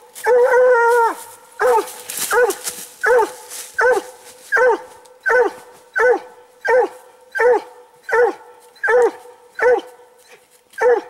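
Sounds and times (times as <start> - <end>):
dog barking rhythmically: 1.6 - 10.2, 10.8 - 11.0.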